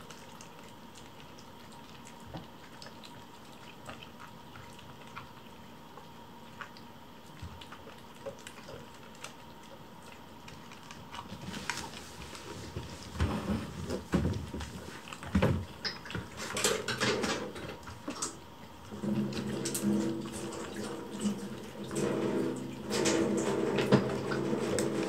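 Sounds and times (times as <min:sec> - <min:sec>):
kittens lapping and chewing: 0:00.0 - 0:25.0
rustling: 0:10.8 - 0:15.4.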